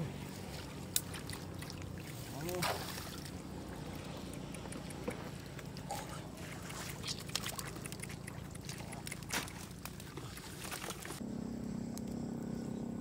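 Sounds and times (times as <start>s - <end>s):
rustling wet grass: 0.1s - 4.2s, 5.3s - 11.2s
fish splashing in shallow water: 0.2s - 11.2s.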